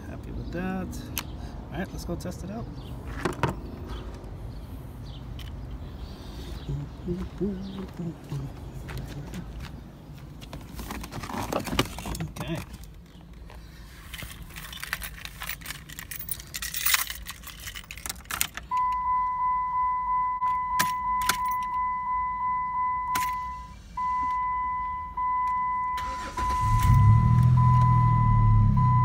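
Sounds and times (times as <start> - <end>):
keys jangling: 14.4 - 18.7
dashboard warning chime: 18.7 - 29.0
ignition clicks: 20.4 - 29.0
car engine cranking and starting: 25.3 - 29.0.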